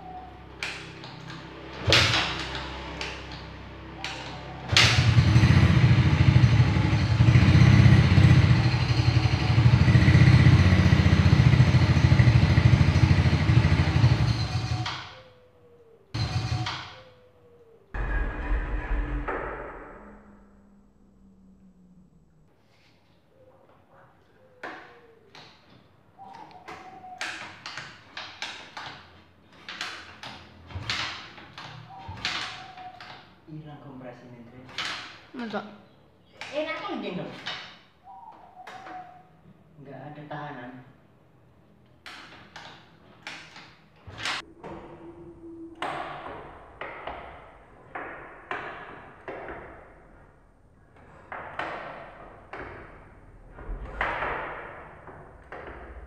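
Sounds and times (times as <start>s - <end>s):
scooter engine kick-start: 1.8s - 15.2s, 16.2s - 17.0s
scooter engine running unevenly: 4.9s - 14.8s.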